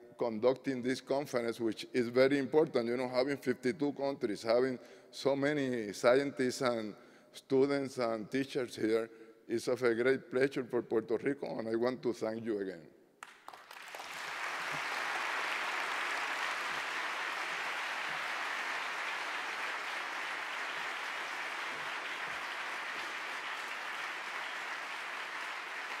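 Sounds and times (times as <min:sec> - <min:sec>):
audience applauding: 0:13.2 - 0:26.0.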